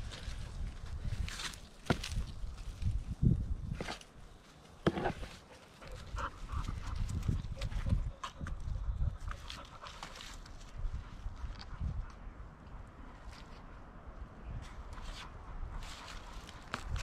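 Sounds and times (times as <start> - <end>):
hand cultivator scratching soil: 4.8 - 6.0.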